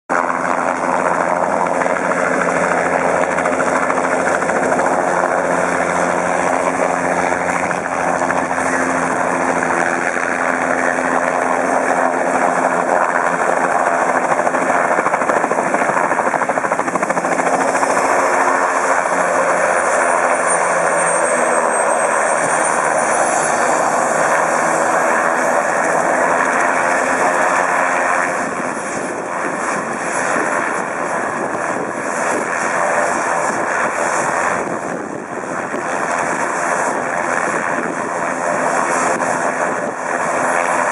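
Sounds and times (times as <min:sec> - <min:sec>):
helicopter turbine and rotor: 0:00.1 - 0:40.9
thin high whine: 0:19.5 - 0:24.8.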